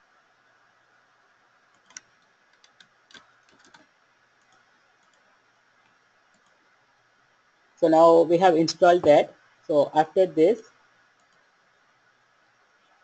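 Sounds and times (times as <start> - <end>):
faint steady hiss: 0.0 - 13.0
computer clicks: 1.7 - 6.6, 11.2 - 11.5.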